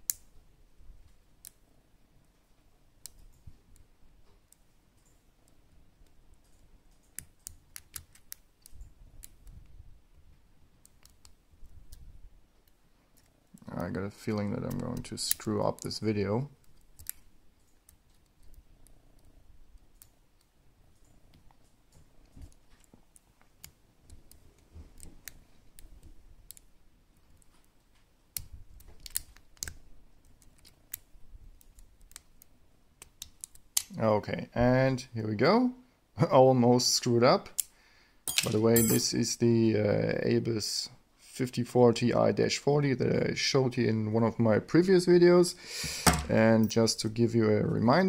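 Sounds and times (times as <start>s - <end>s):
faint handling noise: 45.2s - 47.8s.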